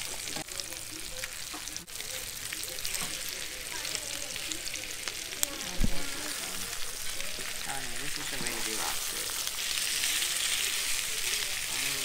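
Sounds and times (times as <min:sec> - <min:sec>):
food sizzling in frying pan: 0:00.0 - 0:12.0
spatula scraping pan: 0:05.5 - 0:12.0.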